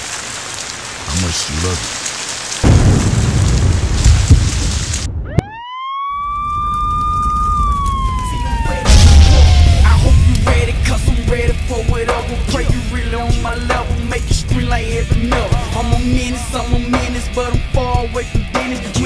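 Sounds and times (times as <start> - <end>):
siren wailing: 5.1 - 10.7
heavy beat: 8.8 - 19.0.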